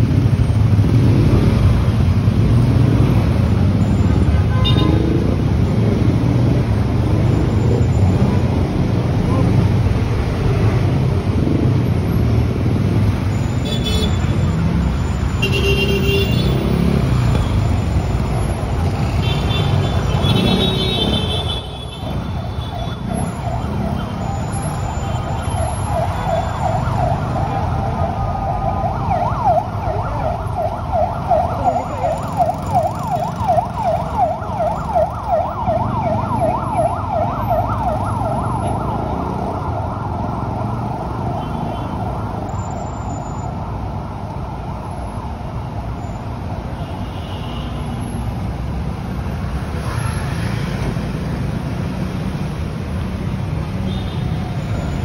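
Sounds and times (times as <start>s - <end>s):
city street traffic: 0.0s - 55.0s
emergency siren yelping: 22.2s - 42.6s.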